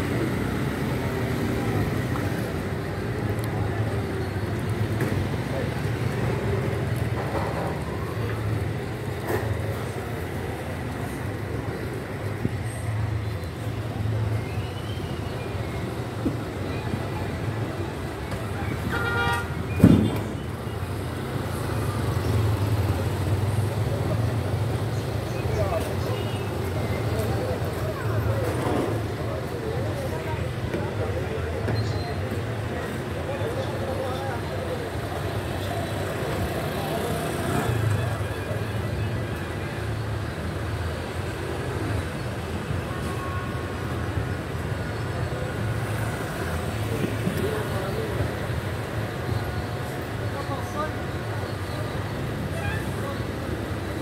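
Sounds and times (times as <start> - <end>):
traffic engine hum: 0.0 - 54.0
car horn toot: 18.9 - 19.6
loud thump: 19.8 - 20.3.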